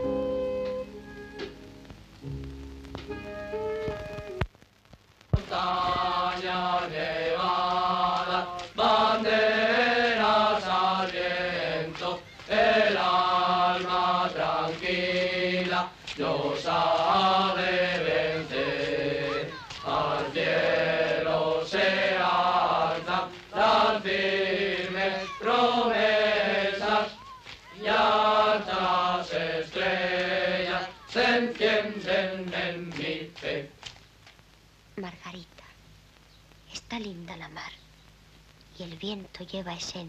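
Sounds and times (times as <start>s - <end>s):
choir singing: 5.4s - 33.8s.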